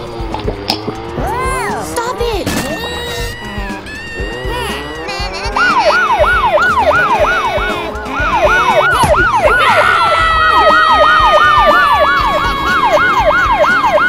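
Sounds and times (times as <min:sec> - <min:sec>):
police siren yelping: 0:02.8 - 0:14.0
long siren tone sliding down: 0:03.0 - 0:14.0.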